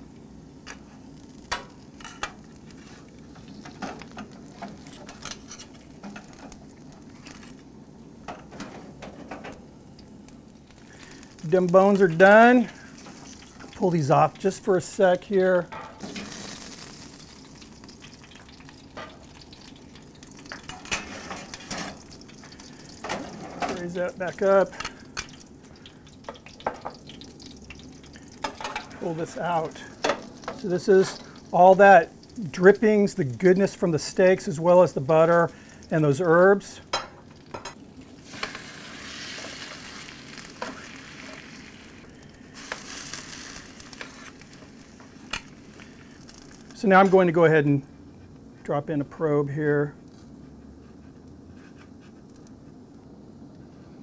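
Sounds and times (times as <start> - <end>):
fat sizzling in metal tray: 0.0 - 47.9
sharp pops and crackles: 16.0 - 32.4, 36.9 - 47.2.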